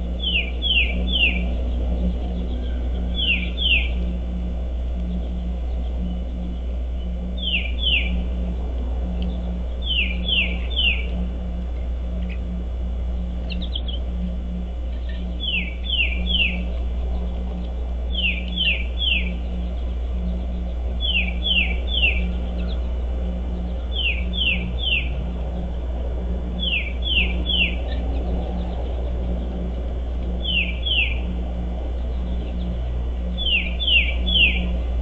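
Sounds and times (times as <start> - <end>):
low hum: 0.0 - 35.0
songbird whistled notes: 0.2 - 1.5, 2.4 - 4.0, 7.0 - 8.2, 9.8 - 11.1, 15.0 - 16.7, 18.1 - 19.8, 21.0 - 22.8, 23.8 - 25.2, 26.6 - 28.9, 30.4 - 31.3, 33.3 - 34.8.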